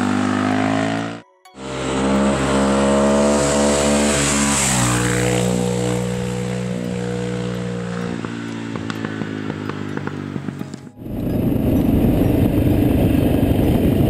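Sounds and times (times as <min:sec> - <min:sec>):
motorcycle engine at high revs: 0:00.0 - 0:14.0
engine popping: 0:08.0 - 0:14.0.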